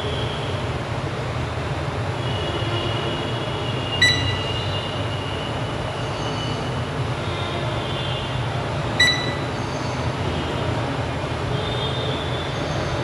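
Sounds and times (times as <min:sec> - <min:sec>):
sharp click with ringing tone: 0:09.0 - 0:09.5.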